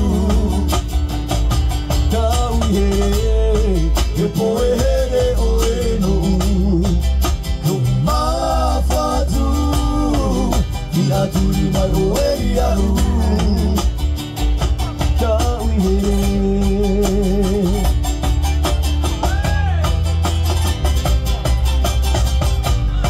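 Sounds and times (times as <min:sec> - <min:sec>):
men singing together: 0:00.0 - 0:00.8, 0:02.1 - 0:07.0, 0:07.6 - 0:13.9
heavy bass line: 0:00.0 - 0:23.0
strummed acoustic guitar: 0:00.0 - 0:23.0
ukuleles: 0:00.0 - 0:23.0.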